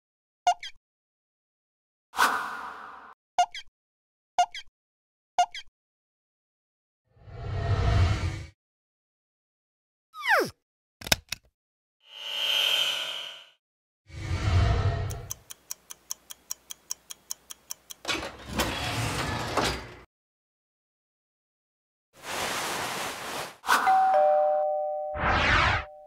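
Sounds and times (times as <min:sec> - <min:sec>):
quick ticks: 0:15.1 - 0:18.0
descending ding-dong chime: 0:23.9 - 0:25.2.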